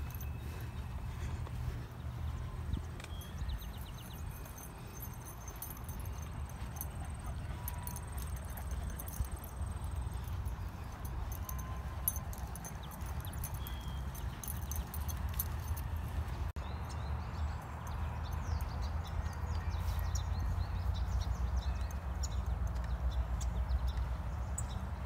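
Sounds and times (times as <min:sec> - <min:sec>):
footsteps on grass: 0:00.0 - 0:08.1.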